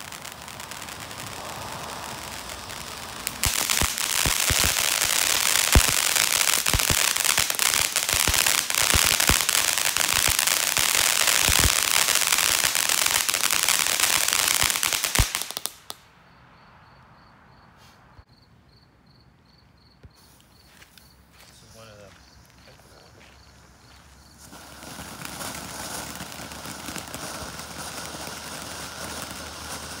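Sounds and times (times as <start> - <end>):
firework fountain hissing: 0.0 - 16.0, 24.3 - 30.0
sharp crackling pops: 0.0 - 16.2.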